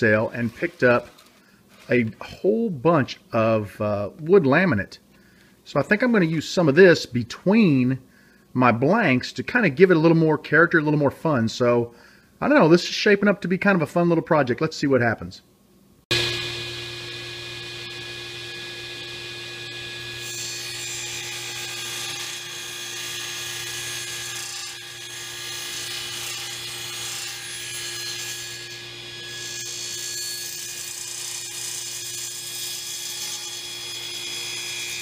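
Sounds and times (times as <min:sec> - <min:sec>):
saw blade cutting wood: 0:16.1 - 0:35.0
table saw running: 0:16.1 - 0:35.0.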